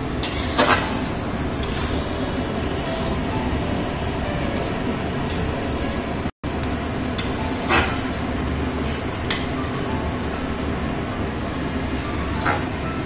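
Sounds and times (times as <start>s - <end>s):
metal spatula scraping a pan: 0.2s - 3.4s, 4.4s - 6.2s, 7.2s - 8.2s, 12.0s - 12.8s.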